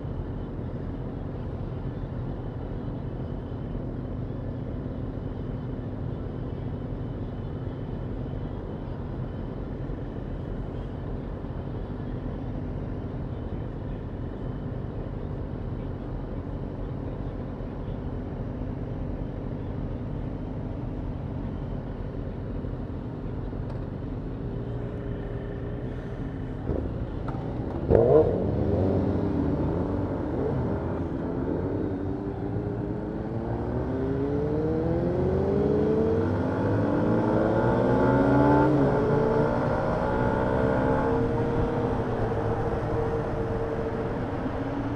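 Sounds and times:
motorcycle engine revving: 27.7s - 31.9s
motorcycles accelerating away: 27.9s - 30.5s.

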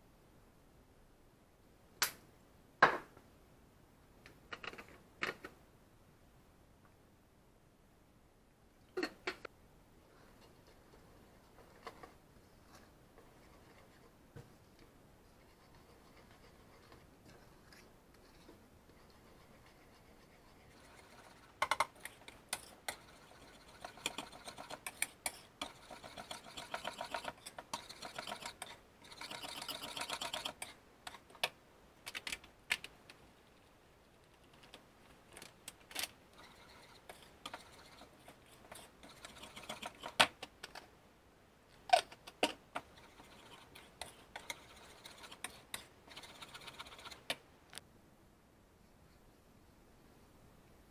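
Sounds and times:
whisk rattling in a bowl: 19.1s - 30.8s, 36.4s - 40.2s, 42.8s - 47.3s.

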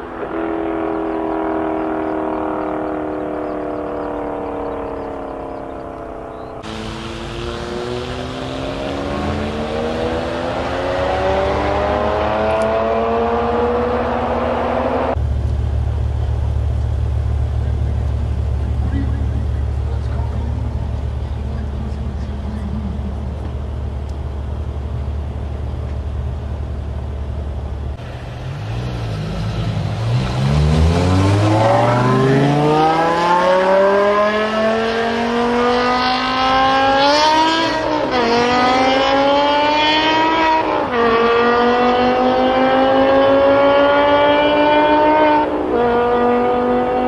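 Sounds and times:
car engine revving through gears: 0.0s - 15.2s, 27.9s - 47.0s.

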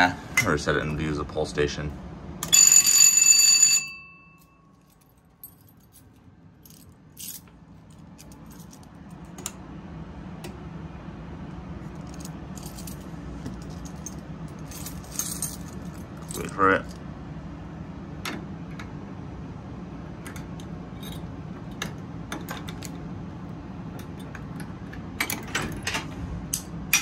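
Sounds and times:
keys jingling: 4.4s - 9.3s, 11.9s - 17.0s, 20.9s - 21.8s.

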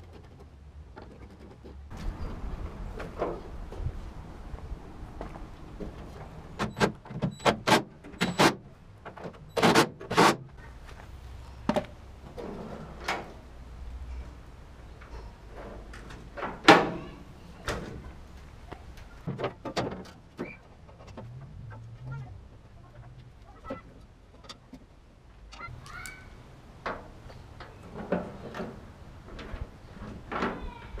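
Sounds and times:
metal tailgate clicks and clunks: 15.0s - 18.0s.

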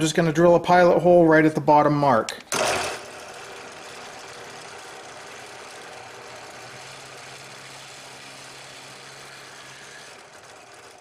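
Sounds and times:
drill press drilling cardboard: 2.5s - 11.0s.

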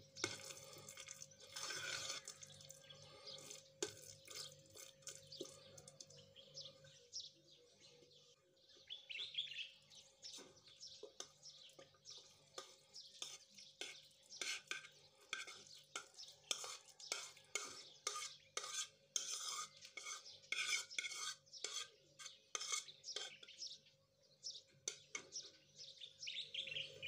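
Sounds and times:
spoon stirring wet mixture: 0.0s - 6.2s, 9.9s - 23.6s.

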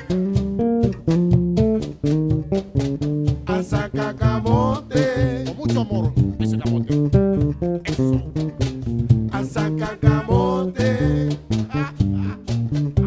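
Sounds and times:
electric bass guitar line: 0.0s - 13.0s
nylon-string guitar: 0.0s - 13.0s.

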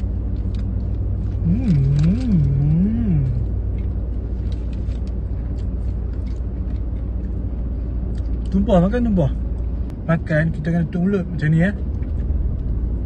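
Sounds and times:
car engine idling: 0.0s - 13.0s
person humming: 1.4s - 3.6s.

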